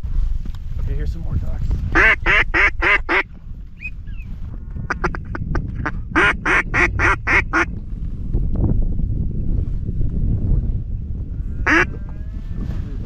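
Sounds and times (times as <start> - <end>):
wind rumbling on microphone: 0.0 - 13.0
duck quacking: 1.9 - 3.3, 11.6 - 11.9.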